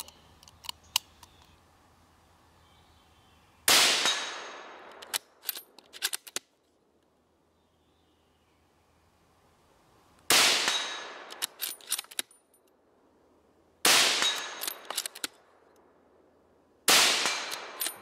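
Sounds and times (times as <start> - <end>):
sharp metallic clicks: 0.0 - 1.5, 4.0 - 6.6, 10.7 - 12.8, 14.2 - 15.9, 17.2 - 18.0.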